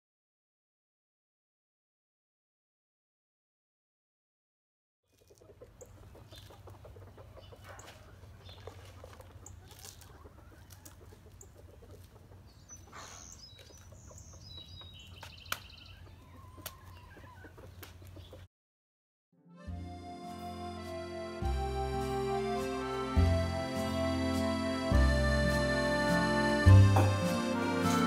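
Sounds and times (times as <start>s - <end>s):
hens clucking: 5.1s - 18.5s, 20.8s - 28.0s.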